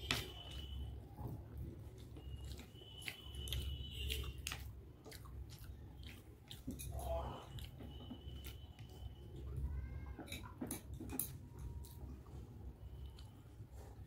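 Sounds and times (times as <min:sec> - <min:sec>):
person chewing and slurping noodles: 0:00.0 - 0:10.6.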